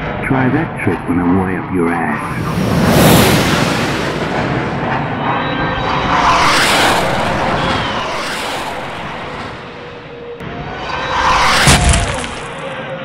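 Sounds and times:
fighter jet engine roar: 0:00.0 - 0:13.0.

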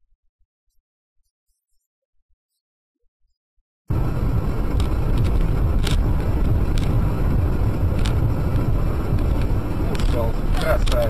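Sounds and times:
car road and engine rumble: 0:03.9 - 0:11.0
sharp clicks or knocks: 0:04.7 - 0:07.0, 0:07.9 - 0:11.0.

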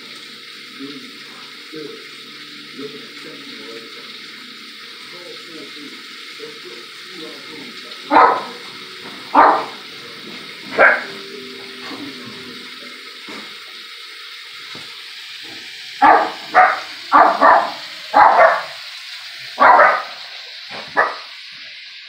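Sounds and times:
dog barking: 0:08.1 - 0:09.8, 0:10.6 - 0:11.2, 0:16.0 - 0:18.8, 0:19.6 - 0:21.3.

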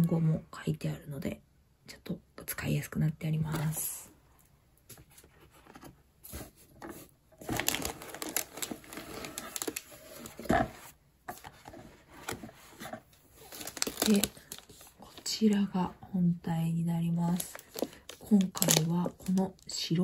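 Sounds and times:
plastic wrapping crinkling: 0:06.9 - 0:15.7, 0:17.0 - 0:20.0.

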